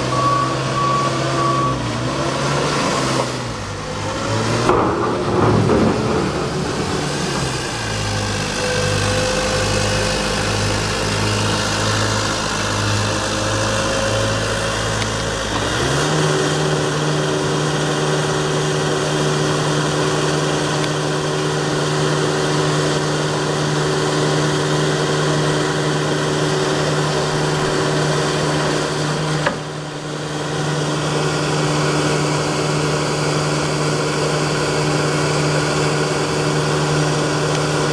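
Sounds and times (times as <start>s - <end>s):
diesel engine running and revving: 0.0s - 37.9s.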